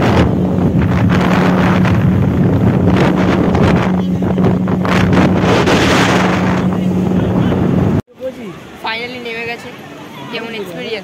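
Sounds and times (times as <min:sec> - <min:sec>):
wind buffeting microphone: 0:00.0 - 0:08.0
speedboat motor droning: 0:00.0 - 0:11.0.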